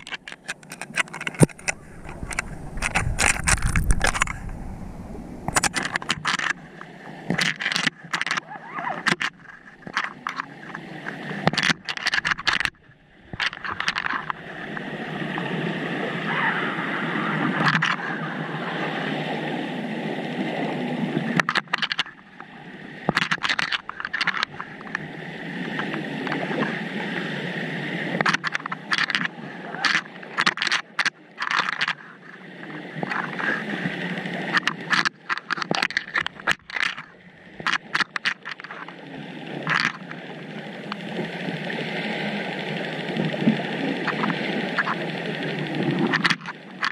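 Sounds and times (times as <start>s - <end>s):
underwater bubbling rush: 0.0s - 7.4s
underwater clicks and knocks: 0.0s - 14.9s, 23.1s - 25.0s, 28.2s - 32.1s, 34.4s - 39.0s, 39.6s - 40.2s, 43.2s - 45.0s, 45.8s - 46.9s.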